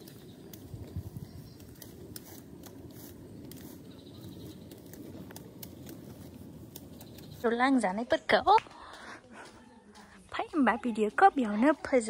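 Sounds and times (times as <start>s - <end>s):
seedlings snapping and rustling: 0.0s - 8.7s.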